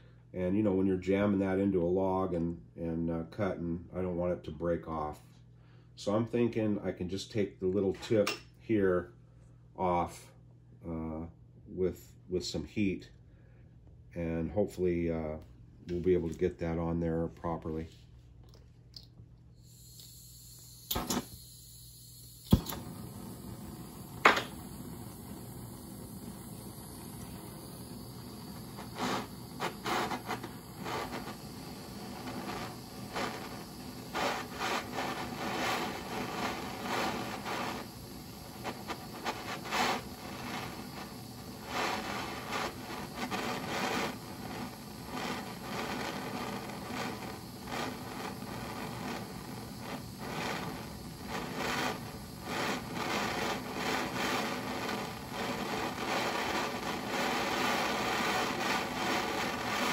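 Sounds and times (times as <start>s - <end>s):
propane torch hissing: 19.0s - 59.9s.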